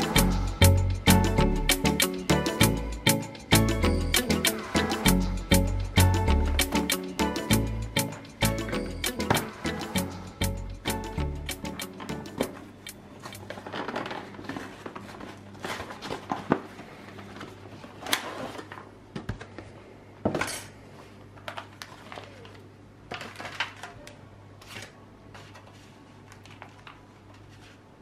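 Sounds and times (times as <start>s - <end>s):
foil tray and plastic pouch crinkling: 13.3s - 18.9s.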